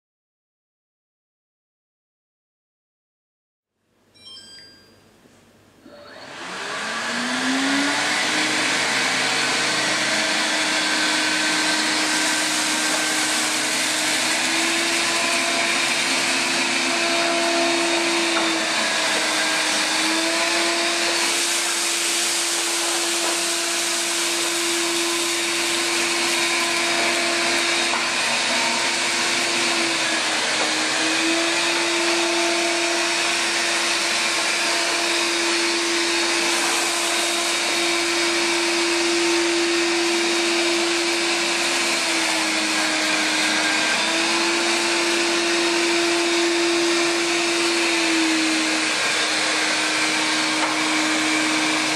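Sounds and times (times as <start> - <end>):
robot vacuum suction motor: 5.8 - 51.9.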